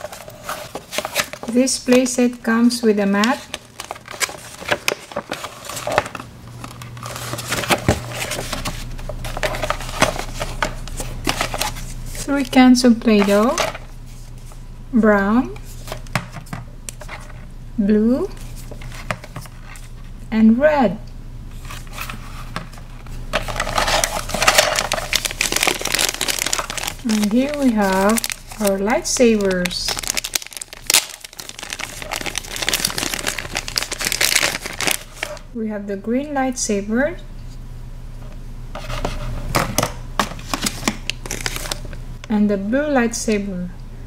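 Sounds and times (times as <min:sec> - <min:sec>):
paper map rustling: 0:00.0 - 0:02.4, 0:03.0 - 0:14.6, 0:21.5 - 0:35.5
steady low hum: 0:00.0 - 0:44.0
plastic bag crinkling: 0:03.2 - 0:13.9, 0:23.3 - 0:35.5, 0:40.5 - 0:41.8.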